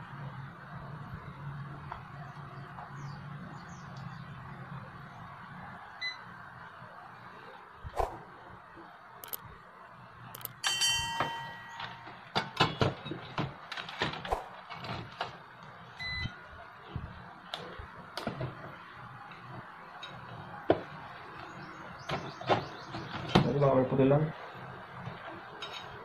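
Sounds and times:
multimeter beeping: 0:10.4 - 0:12.1.

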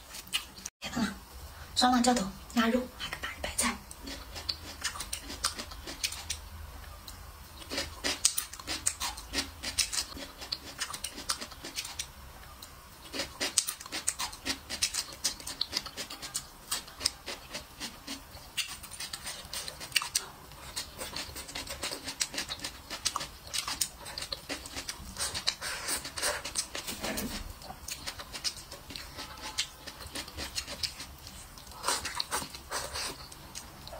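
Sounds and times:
chewing with mouth clicks: 0:00.1 - 0:00.7, 0:03.9 - 0:06.4, 0:07.1 - 0:33.9.

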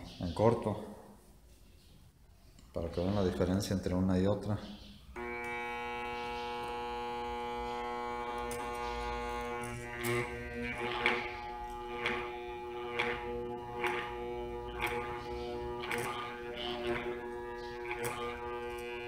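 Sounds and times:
armature growler humming: 0:05.2 - 0:19.0.

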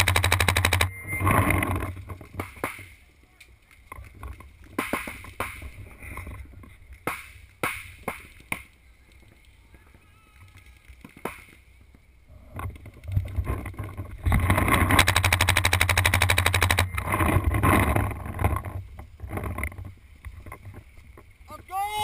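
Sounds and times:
paintball markers firing: 0:00.0 - 0:00.9, 0:14.9 - 0:16.9.

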